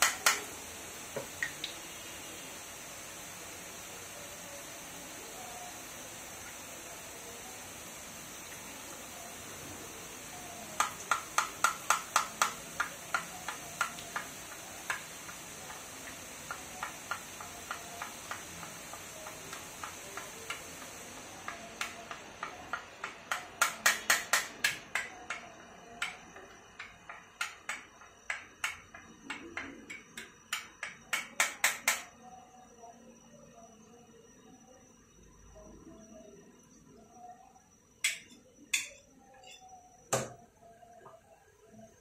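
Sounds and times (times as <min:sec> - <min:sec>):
batter sizzling in oil: 0:00.0 - 0:32.2.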